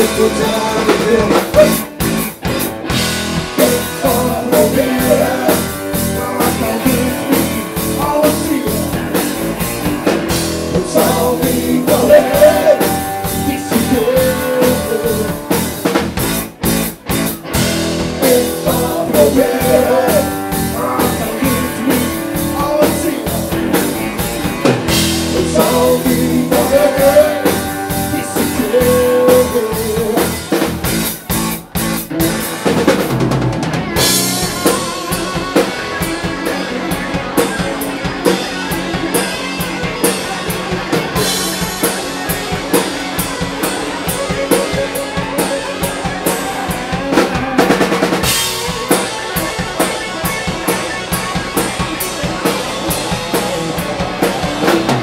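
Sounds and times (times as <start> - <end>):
man singing: 0.0 - 2.0, 3.5 - 9.3, 10.7 - 15.9, 18.0 - 23.9, 25.2 - 30.7
drum kit: 0.0 - 55.0
electric guitars: 0.0 - 55.0.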